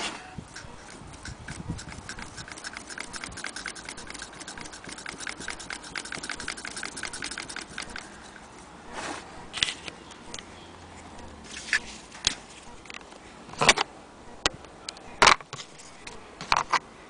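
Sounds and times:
scrape: 0.0s - 9.9s
sewing machine ticking: 0.5s - 8.1s.

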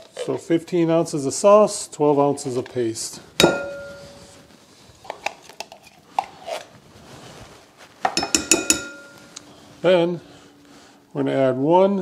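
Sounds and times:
spoon clinking on can and bowl: 3.4s - 4.3s, 8.1s - 9.4s.

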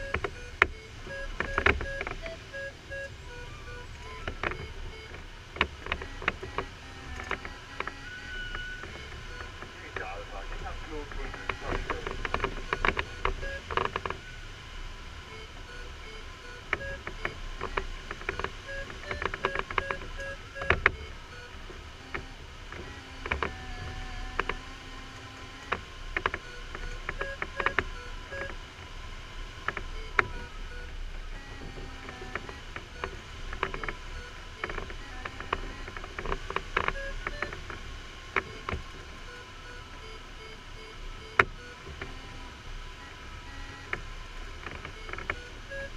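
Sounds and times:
sharp clicks: 0.0s - 10.6s, 29.6s - 38.8s
cockpit airflow noise: 0.0s - 45.9s
long wavering steady tones: 0.0s - 45.9s.

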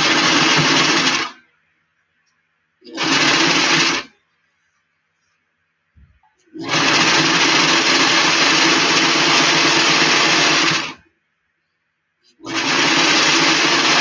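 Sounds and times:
sewing machine running: 0.0s - 1.4s, 2.9s - 4.1s, 6.6s - 11.0s, 12.4s - 14.0s.

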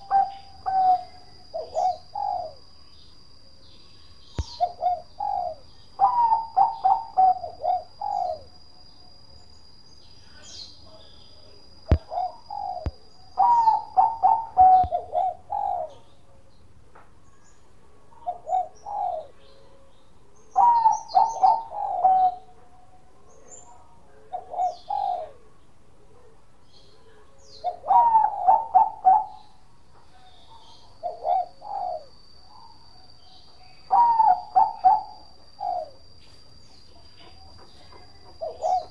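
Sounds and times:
dove cooing: 0.0s - 2.7s, 4.4s - 8.6s, 11.9s - 16.1s, 18.2s - 19.4s, 20.6s - 22.6s, 24.3s - 25.5s, 27.6s - 29.7s, 30.4s - 32.8s, 33.8s - 36.2s, 37.2s - 38.9s.

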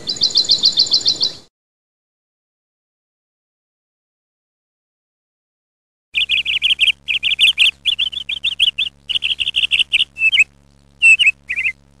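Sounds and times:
lovebird chirping: 0.0s - 1.5s, 6.2s - 11.8s.

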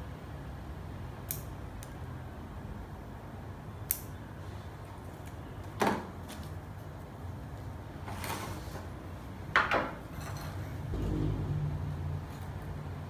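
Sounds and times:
scissors snipping twigs: 1.3s - 2.0s, 3.9s - 4.1s.

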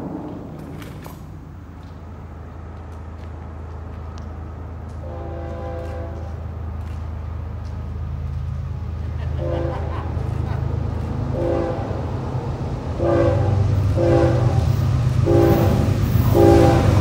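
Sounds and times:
locomotive engine rumble: 0.0s - 17.0s
locomotive horn blast: 4.9s - 6.5s, 9.3s - 10.4s, 11.2s - 12.2s, 13.0s - 17.0s.

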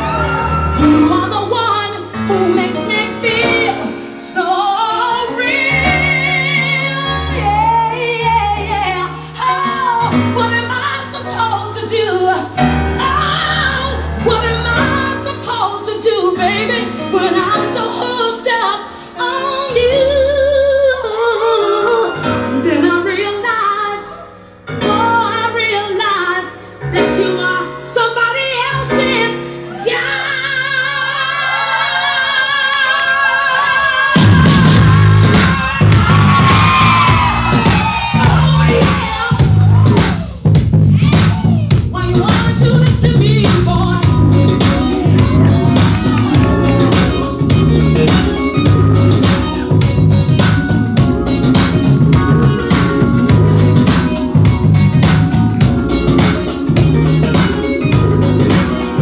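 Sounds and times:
disco song with woman singing: 24.8s - 40.3s, 40.9s - 59.0s.

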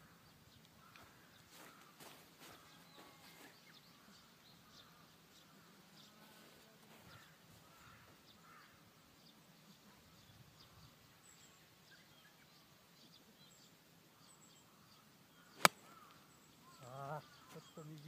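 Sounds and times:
faint bird chirps: 0.0s - 18.0s.

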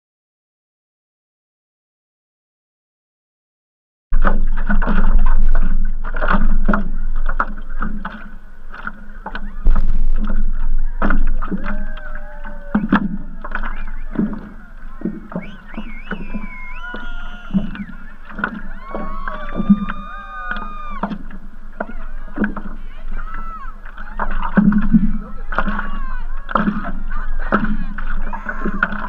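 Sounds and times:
water slapping against paddleboard: 4.2s - 29.0s
wavering gliding tones: 6.9s - 29.0s.

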